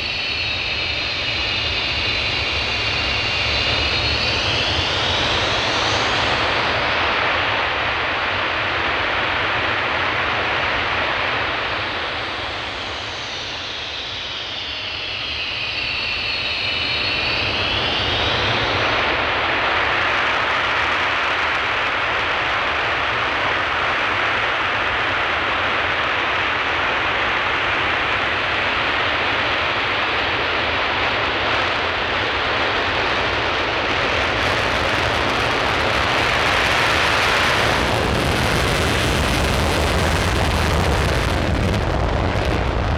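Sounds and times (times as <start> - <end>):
jet engines running: 0.0 - 42.9
high whine sliding in pitch: 12.8 - 19.5, 32.8 - 42.9.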